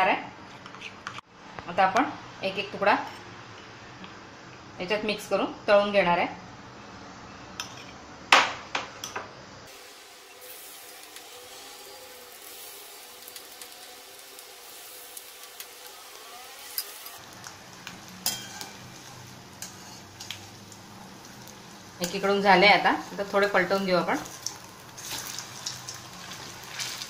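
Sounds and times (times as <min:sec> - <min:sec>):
food deep-frying in oil: 0:09.7 - 0:27.0.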